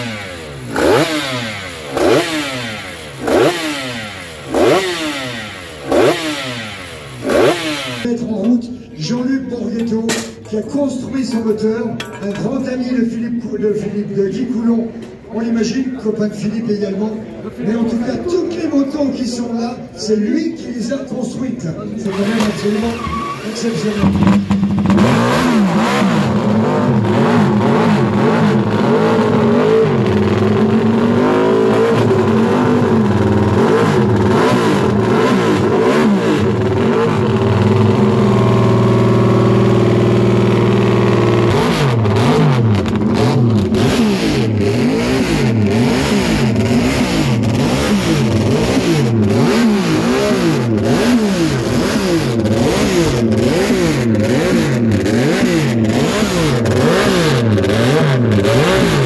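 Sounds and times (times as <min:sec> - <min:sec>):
racing motorcycle engine revving: 0:00.0 - 0:08.2, 0:22.0 - 0:59.0.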